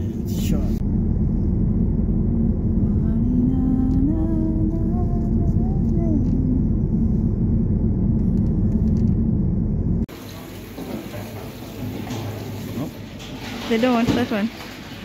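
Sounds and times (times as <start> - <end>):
car road and engine rumble: 0.0 - 10.1.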